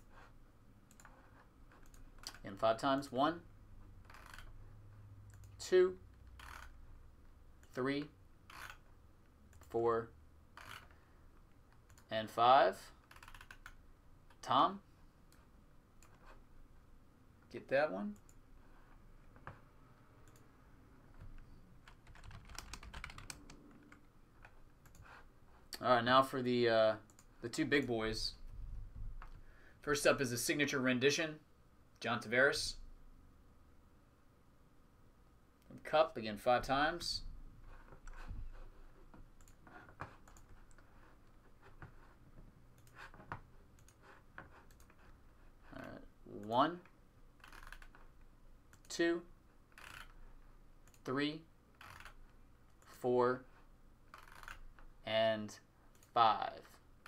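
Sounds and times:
keyboard typing: 0.9s - 2.6s, 4.0s - 4.5s, 11.7s - 12.1s, 13.0s - 13.8s, 21.2s - 25.2s, 39.4s - 40.9s, 47.4s - 48.1s, 49.8s - 50.2s, 54.1s - 54.9s.

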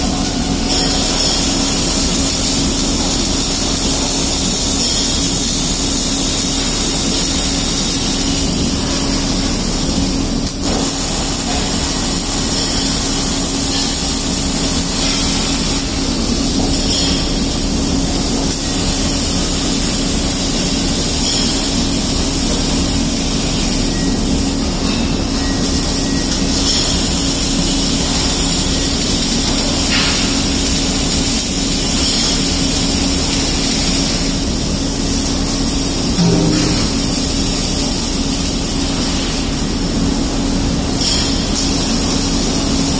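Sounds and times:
welding arc hissing: 0.0s - 42.9s
machinery low hum: 32.6s - 41.0s.

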